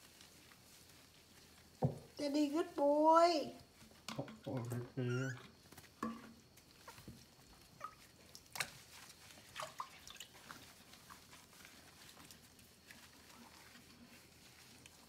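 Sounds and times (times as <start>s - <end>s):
water dripping into tub: 7.6s - 10.5s
small water splashes: 7.7s - 12.2s.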